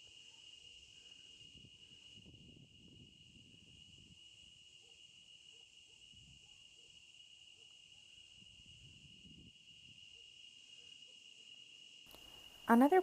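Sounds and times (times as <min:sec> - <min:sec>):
faint insect buzz: 0:00.0 - 0:13.0.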